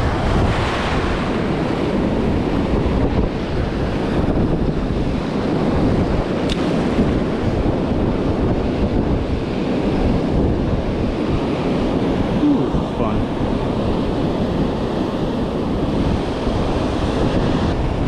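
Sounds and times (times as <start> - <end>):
breaking surf: 0.0 - 5.7
wind buffeting microphone: 0.0 - 18.0.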